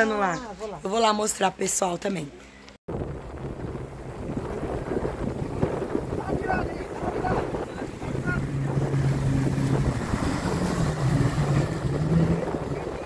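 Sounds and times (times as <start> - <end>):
jet ski engine passing: 2.9 - 13.0
wind buffeting microphone: 2.9 - 13.0.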